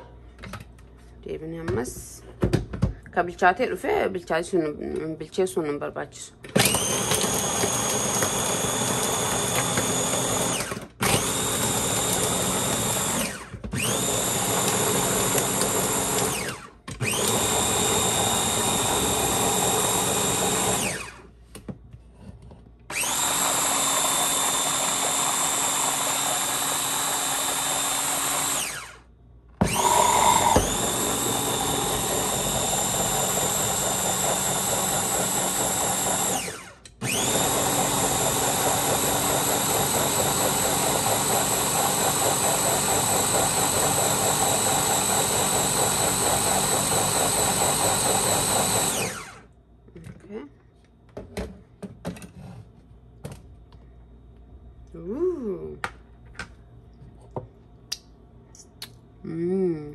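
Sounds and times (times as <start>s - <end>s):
food chopper motor whining: 6.5s - 21.3s, 22.9s - 49.5s.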